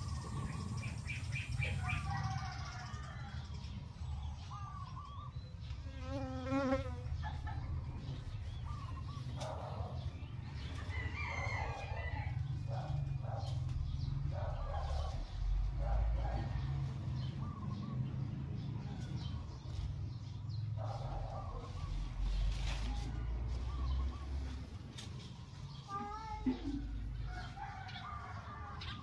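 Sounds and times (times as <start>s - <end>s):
rooster crowing: 1.8s - 3.6s, 10.8s - 12.8s, 27.2s - 29.0s
chickens clucking: 7.0s - 29.0s.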